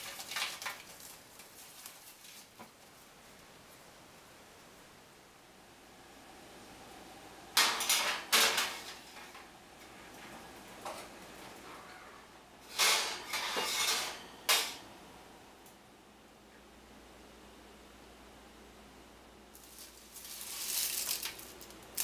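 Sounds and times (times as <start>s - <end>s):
metal baking trays clanking on oven racks: 7.5s - 9.5s, 10.1s - 14.9s.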